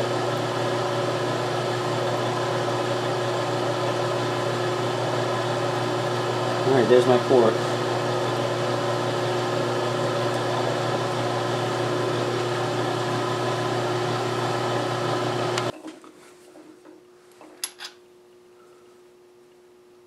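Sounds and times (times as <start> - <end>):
milling machine motor running: 0.0 - 15.7.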